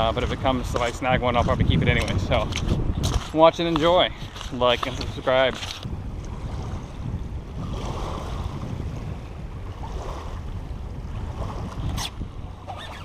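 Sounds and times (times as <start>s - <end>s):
wind buffeting microphone: 0.0s - 13.0s
small waves lapping on stony shore: 7.6s - 9.1s, 9.7s - 12.8s.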